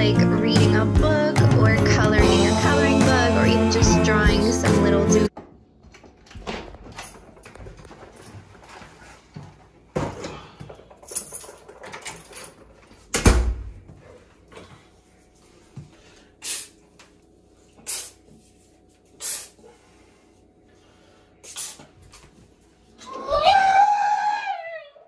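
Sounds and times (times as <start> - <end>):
spray bottle spritzing: 17.9 - 18.2.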